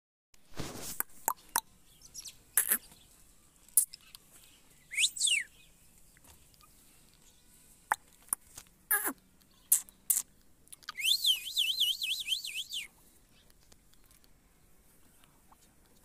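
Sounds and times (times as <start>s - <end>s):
parakeet calls and clicks: 2.6s - 2.9s, 3.7s - 4.2s, 7.9s - 11.0s.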